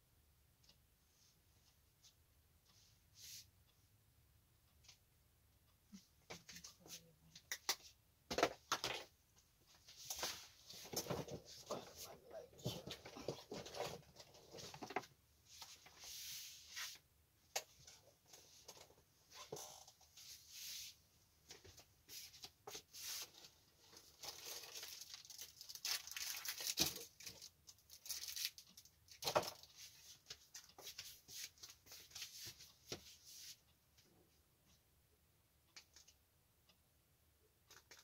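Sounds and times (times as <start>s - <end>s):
rustling and rummaging: 8.3s - 17.0s, 21.4s - 33.5s.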